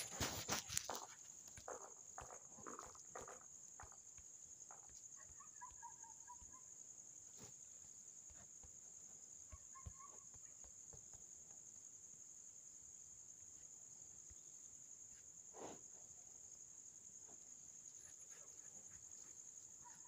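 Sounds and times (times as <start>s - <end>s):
high-pitched insect chorus: 0.0s - 20.0s.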